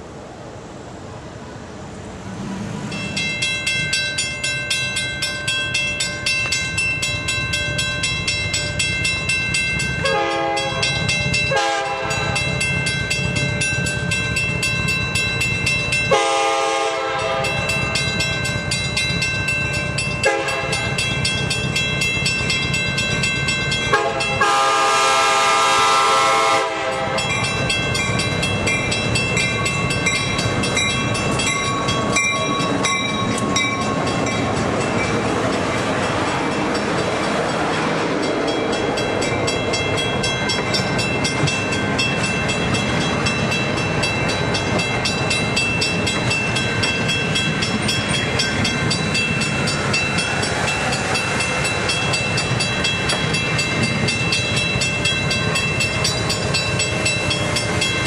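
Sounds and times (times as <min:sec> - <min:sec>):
train wheels and engine rushing: 0:00.0 - 0:58.0
crossing bell ringing: 0:02.8 - 0:58.0
locomotive horn blasts: 0:10.0 - 0:12.4, 0:16.1 - 0:17.8, 0:20.2 - 0:20.9, 0:23.9 - 0:27.4.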